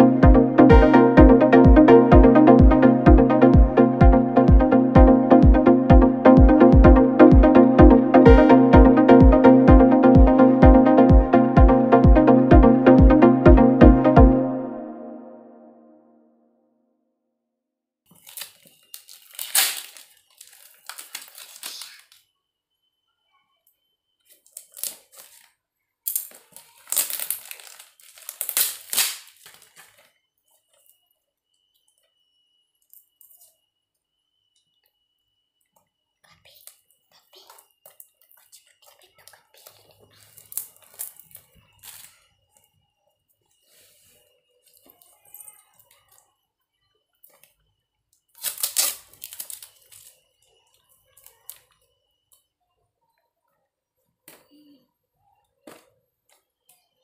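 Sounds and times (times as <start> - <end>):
plastic and tissue wrapping crinkling: 18.1 - 22.3, 24.2 - 31.0, 37.4 - 42.8, 48.3 - 51.8.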